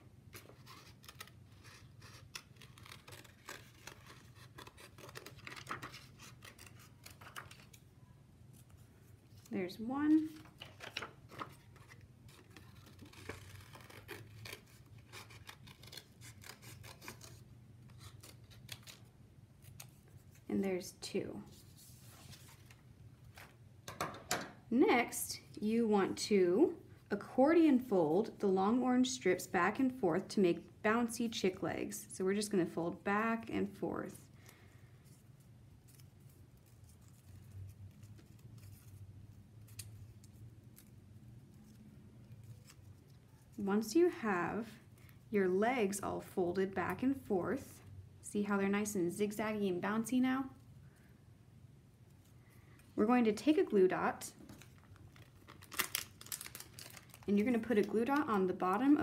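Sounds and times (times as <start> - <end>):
scissors snipping paper: 0.4 - 7.8, 10.9 - 19.9
paper rustling: 10.2 - 20.5, 21.5 - 23.6, 54.4 - 59.0.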